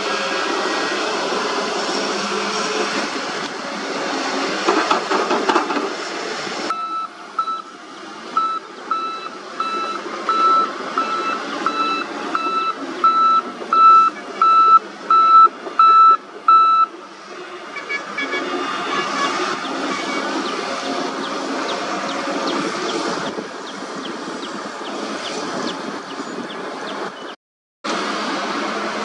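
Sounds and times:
excavator digging: 0:00.0 - 0:17.3
diesel engine running: 0:00.0 - 0:27.0, 0:27.9 - 0:29.0
reversing alarm beeping: 0:06.7 - 0:07.7, 0:08.4 - 0:16.9.

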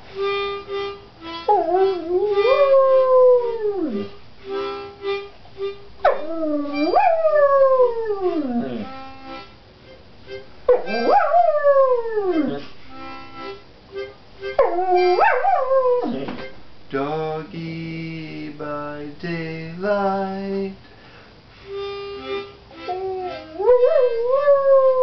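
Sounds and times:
instrument playing steady notes: 0:00.0 - 0:20.7, 0:21.5 - 0:25.0
dog howling: 0:01.5 - 0:04.1, 0:06.1 - 0:08.9, 0:10.7 - 0:12.6, 0:14.6 - 0:16.4, 0:22.9 - 0:25.0.

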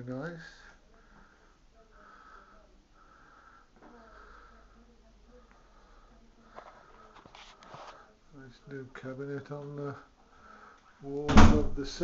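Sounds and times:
person breathing softly: 0:00.5 - 0:08.3, 0:10.0 - 0:11.1.

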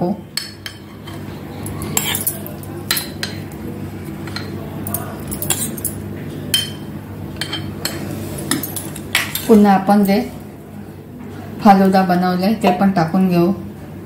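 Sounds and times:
spoon clinking against glass: 0:01.9 - 0:03.4.

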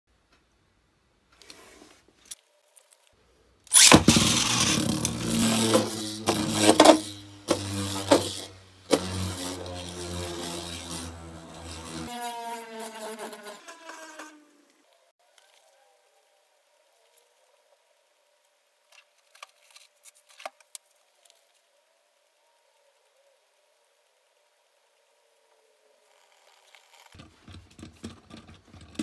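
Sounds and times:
spinning top rattling on plastic: 0:03.7 - 0:12.1, 0:26.1 - 0:29.0
spinning top launch: 0:03.7 - 0:14.5.

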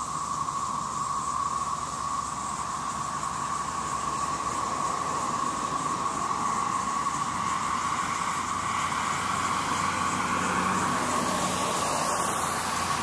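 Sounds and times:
cicadas droning: 0:00.0 - 0:13.0
faint hiss: 0:00.0 - 0:13.0.

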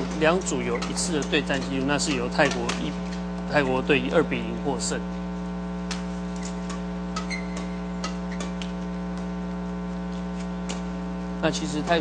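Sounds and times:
electrical mains hum: 0:00.0 - 0:12.0
high squeak: 0:07.2 - 0:08.6.

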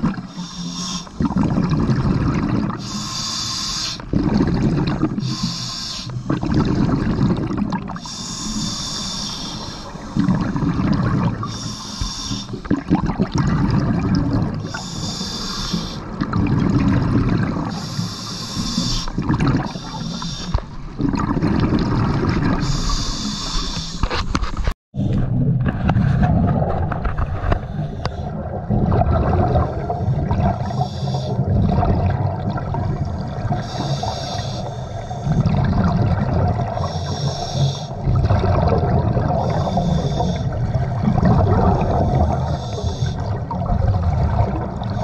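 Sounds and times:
bubbling exhale underwater: 0:00.0 - 0:03.2, 0:03.9 - 0:24.1, 0:25.0 - 0:45.0
regulator hissing inhale: 0:00.3 - 0:01.2, 0:02.8 - 0:04.1, 0:05.2 - 0:06.3, 0:08.0 - 0:10.3, 0:11.4 - 0:12.6, 0:14.6 - 0:16.1, 0:17.7 - 0:20.6, 0:22.6 - 0:24.2, 0:27.6 - 0:28.4, 0:30.0 - 0:31.5, 0:33.6 - 0:35.5, 0:36.8 - 0:38.0, 0:39.4 - 0:40.6, 0:41.8 - 0:43.4.

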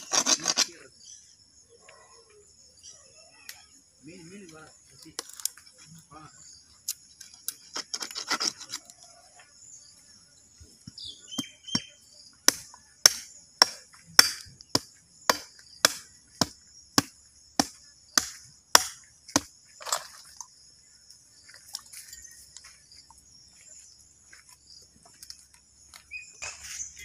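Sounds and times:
high drone of insects: 0:00.0 - 0:27.0
cleaver chopping into bone: 0:12.5 - 0:19.5.

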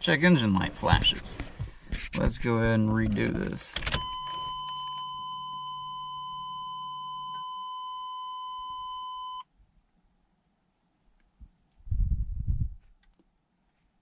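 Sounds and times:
seatbelt warning beep: 0:03.9 - 0:09.4
low hum: 0:04.0 - 0:09.4.

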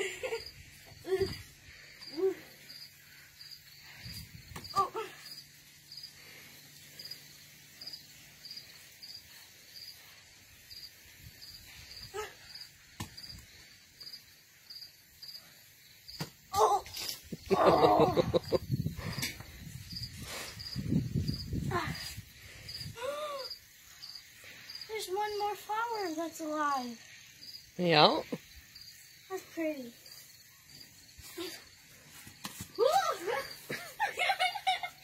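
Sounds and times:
cricket chirping: 0:00.0 - 0:35.0.

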